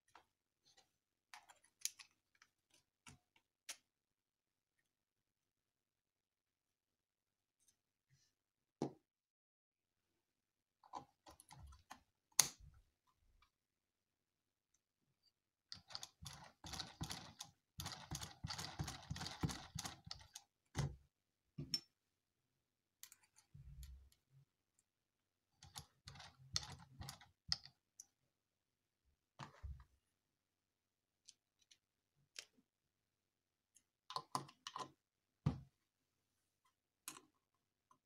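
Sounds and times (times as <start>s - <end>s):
plastic parts clicking and clattering: 0.1s - 3.8s.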